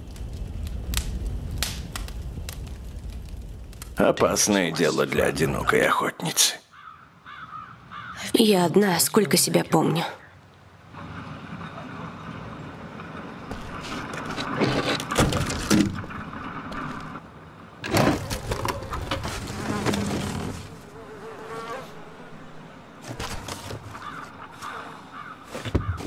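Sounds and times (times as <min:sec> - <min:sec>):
knocks and clatters: 0:13.5 - 0:17.2.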